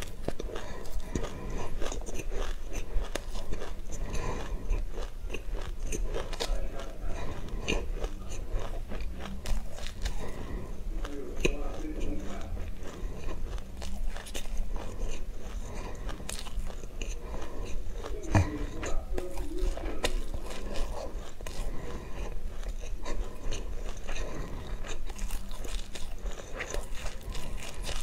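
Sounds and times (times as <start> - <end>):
chewing crunchy seeds: 0.0 - 28.0.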